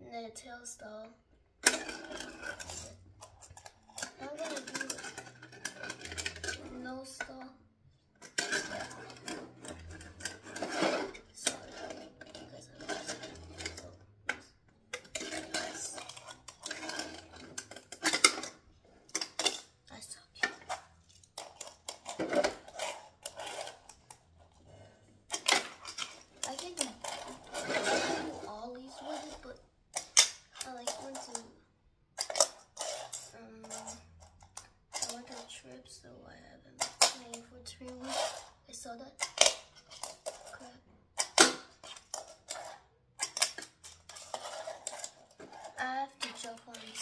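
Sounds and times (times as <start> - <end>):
plastic pieces clicking and clacking: 1.6 - 7.4, 8.2 - 19.8, 20.4 - 24.3, 25.3 - 31.6, 32.2 - 35.5, 36.8 - 38.5, 39.2 - 47.0
fingerboard scraping and rolling: 8.6 - 13.9, 21.4 - 28.5.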